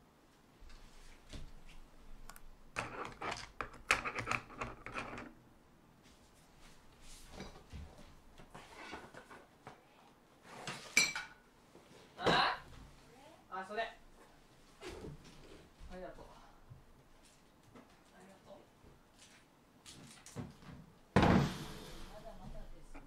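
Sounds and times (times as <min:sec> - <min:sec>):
objects knocking and rattling: 0:02.7 - 0:05.4.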